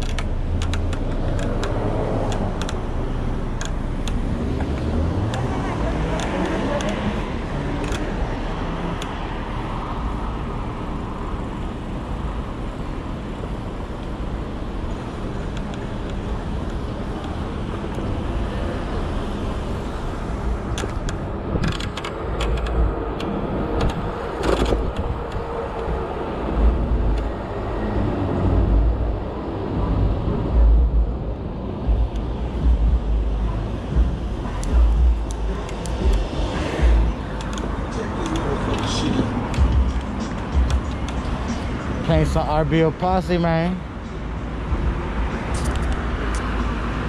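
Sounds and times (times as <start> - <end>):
sharp clicks or knocks: 0.0 - 2.8
wind rumbling on microphone: 0.0 - 42.0
road traffic noise: 0.0 - 47.0.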